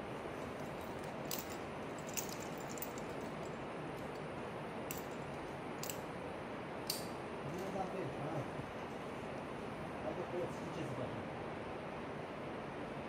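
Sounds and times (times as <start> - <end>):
climbing gear clinking: 0.4 - 4.3, 4.9 - 6.1.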